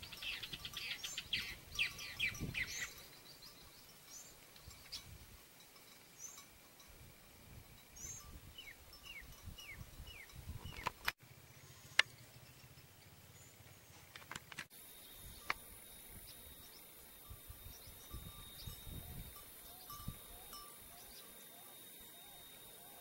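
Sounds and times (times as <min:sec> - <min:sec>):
high bird chirps: 0:00.0 - 0:05.1.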